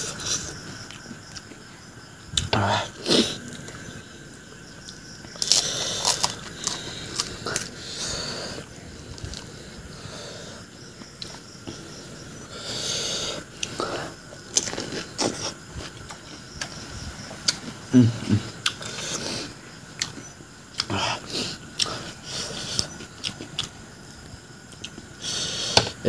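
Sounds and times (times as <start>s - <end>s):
noisy breathing: 0.0s - 0.6s, 5.4s - 15.8s, 17.0s - 19.8s, 20.8s - 23.0s, 25.1s - 26.0s
wet chewing: 3.4s - 9.8s, 18.6s - 26.0s
crisp food crunching: 4.8s - 7.8s.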